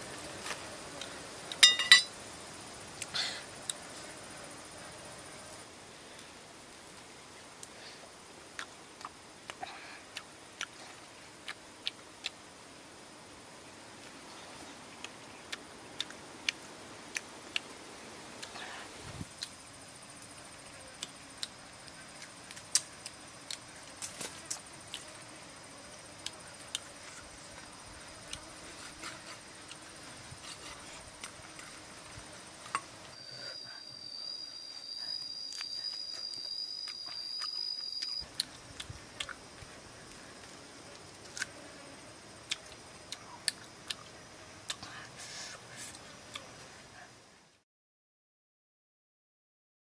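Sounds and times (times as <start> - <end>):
high-pitched insect drone: 23.0 - 40.9.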